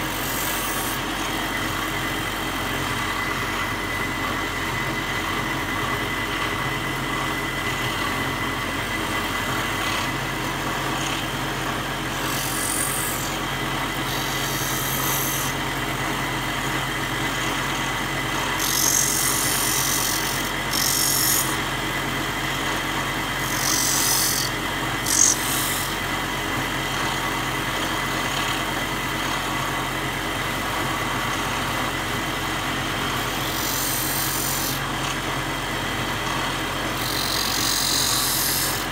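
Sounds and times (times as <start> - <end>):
stone grinding hiss: 0.0 - 1.0, 12.1 - 13.4, 14.0 - 15.6, 18.6 - 21.6, 23.4 - 26.0, 33.3 - 34.8, 37.0 - 38.9
grinding machine hum and whine: 0.0 - 38.9.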